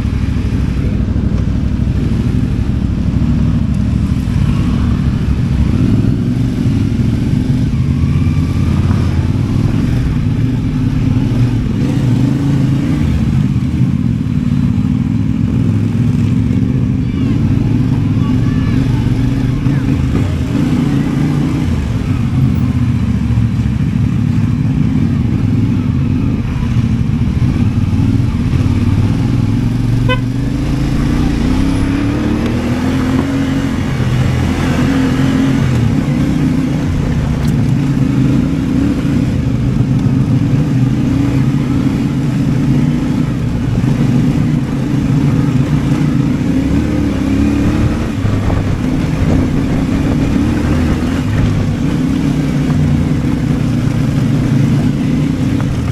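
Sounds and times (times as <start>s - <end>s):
motorcycle engine running: 0.0s - 55.9s.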